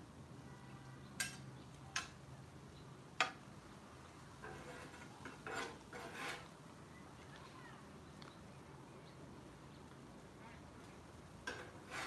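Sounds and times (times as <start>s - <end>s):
spatula scraping plates: 4.4s - 6.5s, 11.4s - 12.0s.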